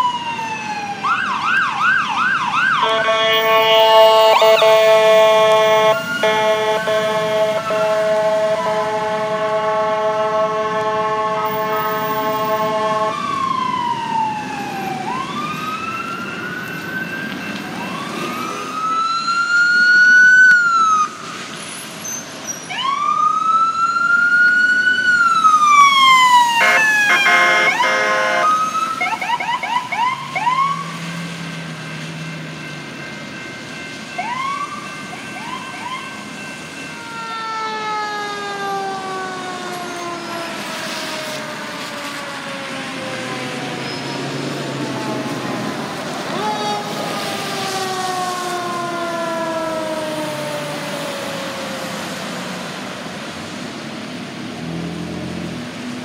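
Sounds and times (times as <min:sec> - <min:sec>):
electronic sirens wailing: 0:00.0 - 0:21.3, 0:22.7 - 0:53.1
steady blaring siren: 0:00.0 - 0:21.5, 0:22.6 - 0:56.0
siren harsh burst: 0:00.5 - 0:21.2, 0:25.2 - 0:31.0
siren yelping chirps: 0:01.2 - 0:07.0, 0:25.4 - 0:30.8.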